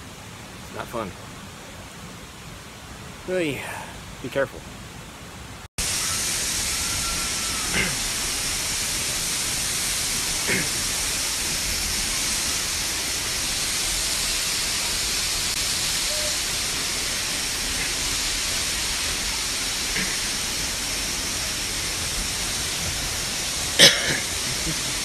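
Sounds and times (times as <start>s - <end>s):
waterfall pouring onto rocks: 5.8s - 25.0s.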